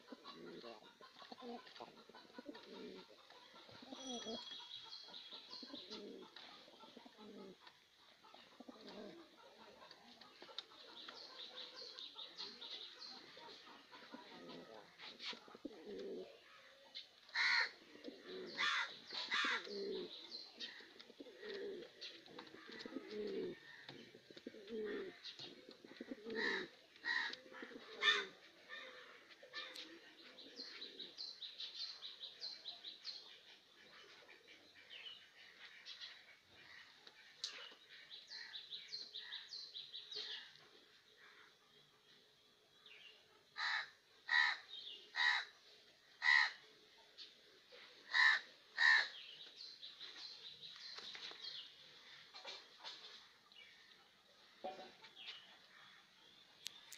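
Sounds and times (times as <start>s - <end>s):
pigeons cooing: 0.0s - 31.4s, 43.5s - 46.7s, 47.4s - 49.6s.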